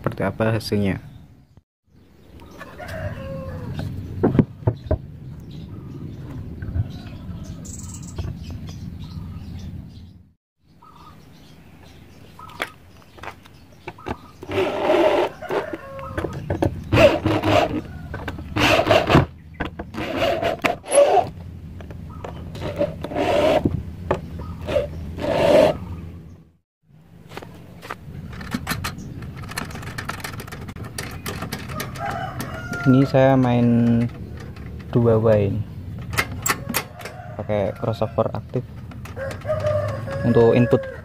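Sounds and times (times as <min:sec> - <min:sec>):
power drill whirring: 0:14.4 - 0:15.6.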